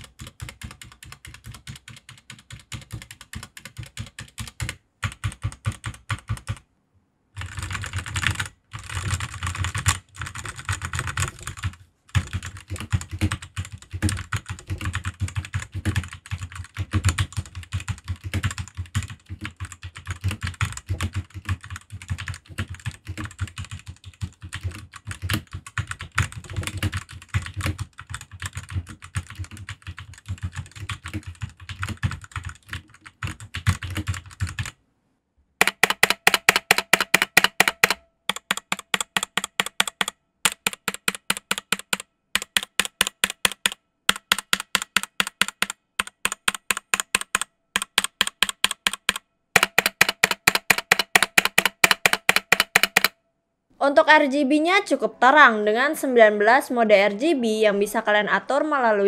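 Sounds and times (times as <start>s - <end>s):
mechanical keyboard typing: 0.0s - 6.7s, 7.4s - 34.8s, 35.6s - 53.2s
keyboard stabilizers rattling: 35.6s - 53.1s.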